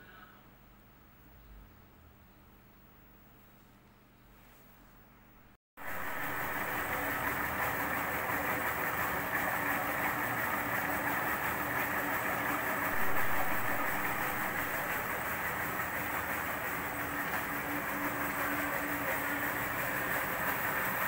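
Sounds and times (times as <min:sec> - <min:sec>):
milling machine whirring: 0:05.8 - 0:21.0.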